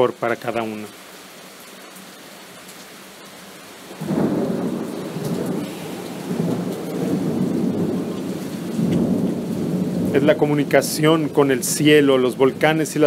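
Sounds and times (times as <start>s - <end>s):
rain falling: 0.0s - 13.0s
thunder rumbling: 3.9s - 13.0s.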